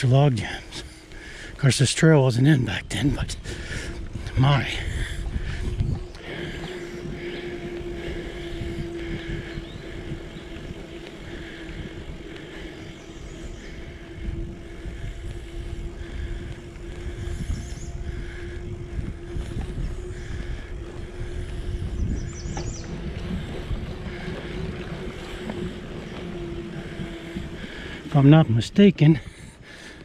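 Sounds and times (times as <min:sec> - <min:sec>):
bicycle tyres on pavement: 0:00.0 - 0:30.0
steady hum: 0:00.0 - 0:30.0
wind rumbling on microphone: 0:00.0 - 0:30.0.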